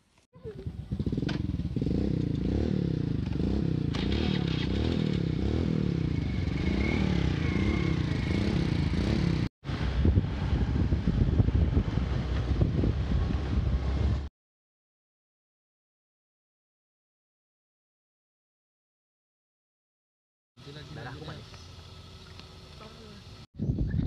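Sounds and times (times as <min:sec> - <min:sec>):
small motorcycle engine running: 0:00.4 - 0:14.2, 0:20.6 - 0:23.5
rattling on dirt track: 0:00.6 - 0:14.2.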